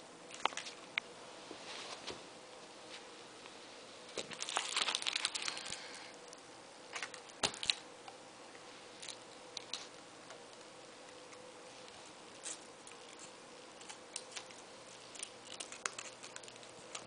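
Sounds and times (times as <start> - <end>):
crinkling rustle: 4.1 - 6.2, 6.9 - 7.8, 8.8 - 17.0.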